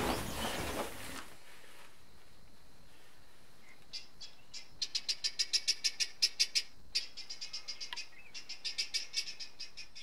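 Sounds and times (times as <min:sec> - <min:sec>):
guineafowl calling: 0:03.9 - 0:10.0.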